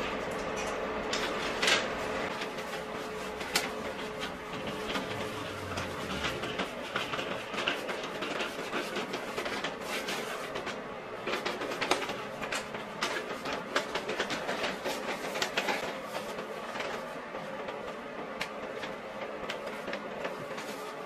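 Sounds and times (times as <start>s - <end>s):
paper window shade crinkling: 1.4s - 10.7s.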